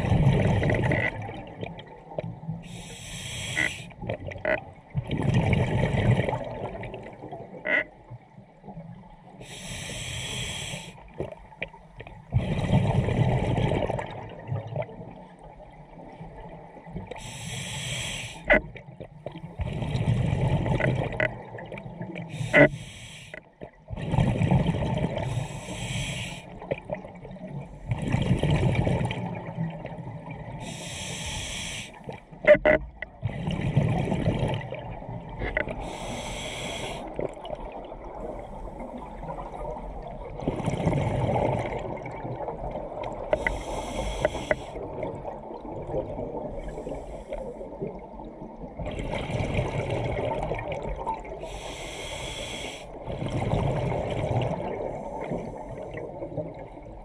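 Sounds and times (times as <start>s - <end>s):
exhaled bubbles rumbling: 0.0s - 2.6s, 3.6s - 9.3s, 11.1s - 17.2s, 18.5s - 22.7s, 23.6s - 30.7s, 32.1s - 51.6s, 52.9s - 57.0s
regulator inhalation hiss: 2.6s - 3.9s, 9.4s - 11.0s, 17.2s - 18.5s, 22.3s - 23.4s, 25.2s - 26.5s, 30.6s - 32.0s, 35.8s - 37.1s, 43.4s - 44.8s, 51.4s - 53.0s.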